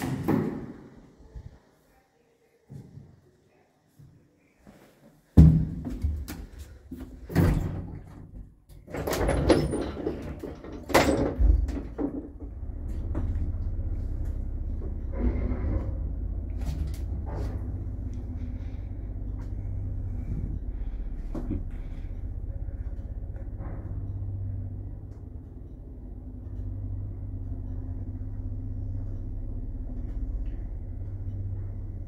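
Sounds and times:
clanks and knocks: 0:05.4 - 0:13.5, 0:23.0 - 0:25.2
lift motor hum: 0:06.6 - 0:32.0
lift doors slamming: 0:08.8 - 0:12.4.

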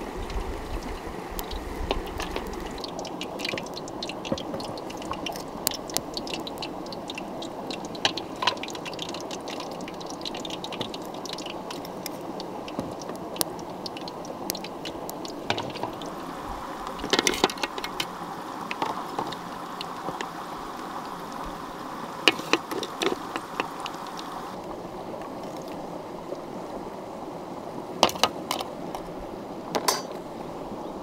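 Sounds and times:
flowing stream: 0:00.0 - 0:31.0
sharp clicks and knocks: 0:22.3 - 0:23.9.

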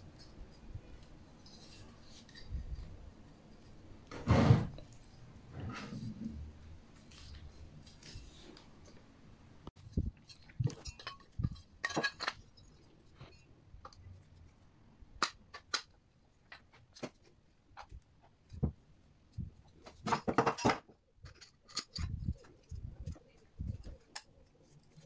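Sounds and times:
metal parts clattering: 0:10.2 - 0:12.6.

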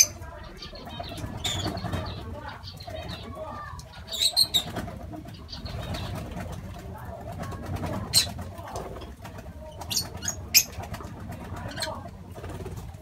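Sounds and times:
lovebirds chattering and chirping: 0:00.0 - 0:13.0
wing flaps: 0:04.4 - 0:13.0.

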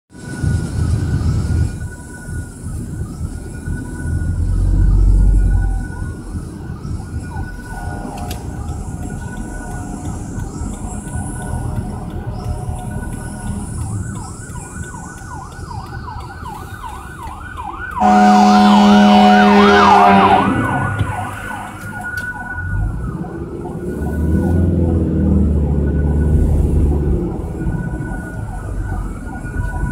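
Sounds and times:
road rumble inside car: 0:00.1 - 0:29.9
fire truck siren wailing: 0:00.2 - 0:29.9
air horn blast: 0:18.0 - 0:21.8.

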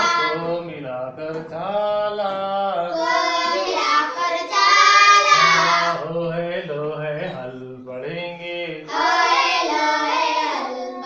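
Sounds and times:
children singing together: 0:00.0 - 0:00.6, 0:02.8 - 0:06.1, 0:08.8 - 0:11.0.

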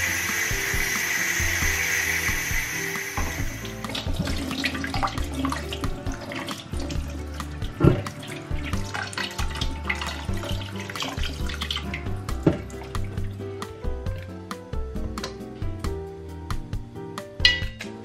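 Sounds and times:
faucet running into steel sink: 0:00.0 - 0:13.3
water splashing: 0:00.0 - 0:13.4
music with steady bass line: 0:00.0 - 0:18.0
metal tongs clacking: 0:17.5 - 0:18.0.

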